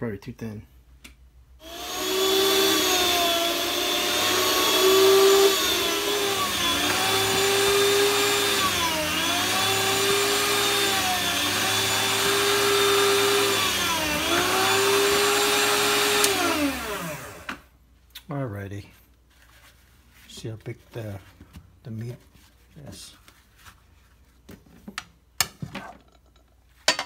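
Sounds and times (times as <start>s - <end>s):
electric meat slicer running: 1.6s - 17.6s.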